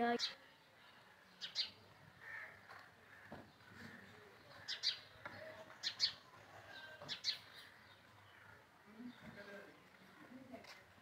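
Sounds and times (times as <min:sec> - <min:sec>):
small bird chirping: 0:01.4 - 0:01.8.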